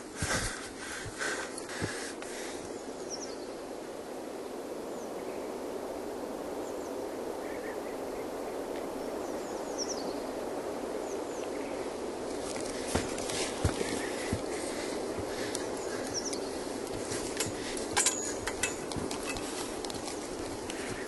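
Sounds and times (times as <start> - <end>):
bird chirps: 15.4 - 16.7.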